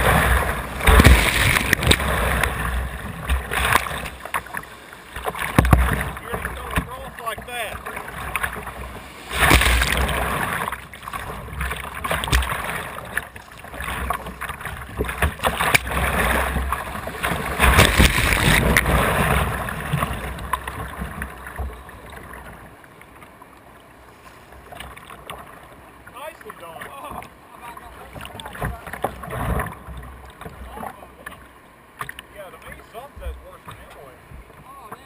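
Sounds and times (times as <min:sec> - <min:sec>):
whitewater rushing and splashing: 0:00.0 - 0:22.7.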